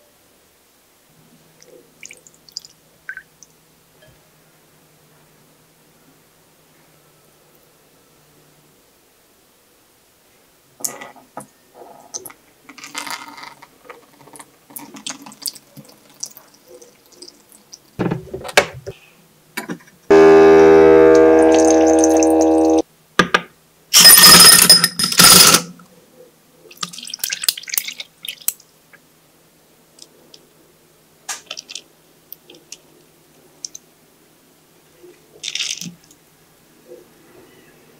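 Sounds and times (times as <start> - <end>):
wet squelches and drips: 1.6 - 3.5, 14.4 - 18.0, 26.7 - 28.7, 31.3 - 32.9
electric appliance humming: 20.1 - 22.8
ice cubes clattering into glass: 24.0 - 25.7.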